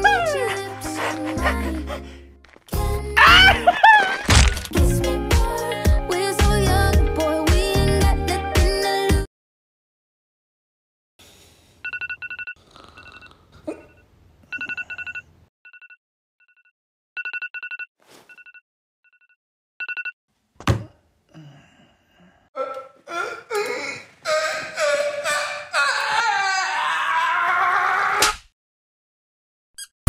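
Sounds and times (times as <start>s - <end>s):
phone alarm beeping: 13.9s - 16.0s
person yawning: 21.3s - 27.5s.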